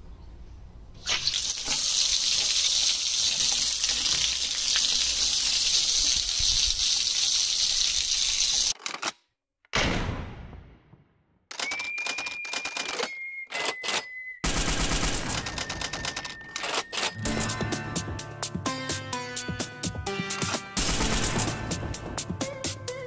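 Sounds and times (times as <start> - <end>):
water rushing from a tap: 1.0 - 8.8.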